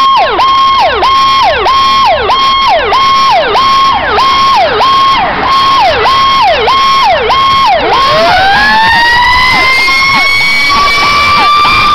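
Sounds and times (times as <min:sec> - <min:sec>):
fire truck electronic siren: 0:00.0 - 0:11.9.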